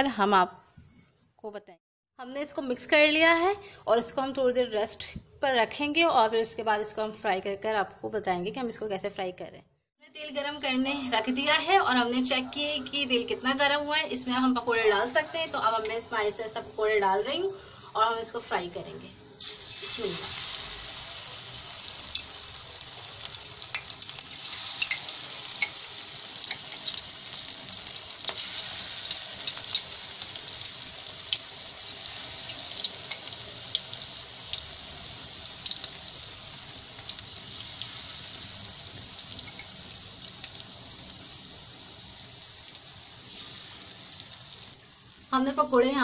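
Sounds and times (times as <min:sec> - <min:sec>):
batter deep-frying in oil: 0:19.4 - 0:46.0.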